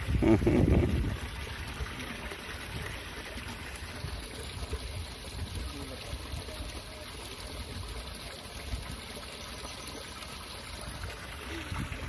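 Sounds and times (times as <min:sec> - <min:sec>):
wind rumbling on microphone: 0:00.0 - 0:01.4, 0:11.6 - 0:12.0
steady outdoor hiss: 0:00.0 - 0:12.0.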